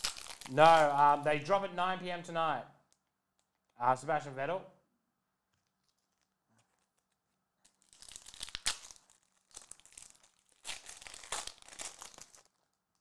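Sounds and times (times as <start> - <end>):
foil wrapper tearing and crinkling: 0.0 - 0.9, 5.5 - 13.0.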